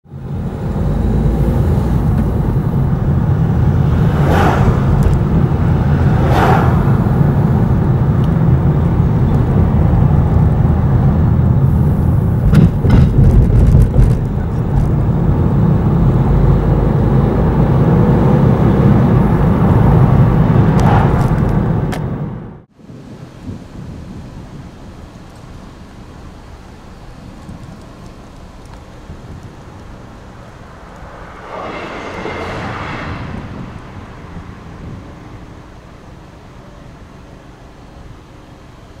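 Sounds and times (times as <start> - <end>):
vehicles passing: 0.0 - 22.7, 28.6 - 37.7
road and engine noise: 0.0 - 39.0
knocks: 12.5 - 14.2.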